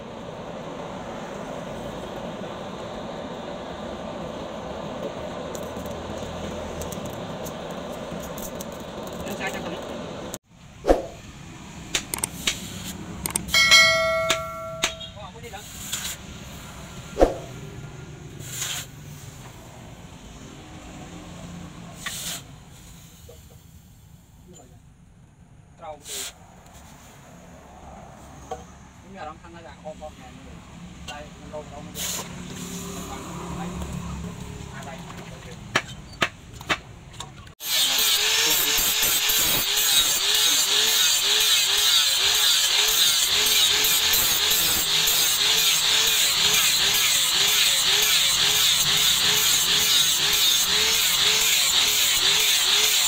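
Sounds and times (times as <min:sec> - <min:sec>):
sharp clicks: 0:11.9 - 0:12.6, 0:13.2 - 0:13.5
angle grinder grinding steel: 0:13.3 - 0:15.1, 0:37.6 - 0:53.0
hot metal hissing in water: 0:15.5 - 0:16.8, 0:18.4 - 0:19.4, 0:22.0 - 0:24.4, 0:37.6 - 0:53.0.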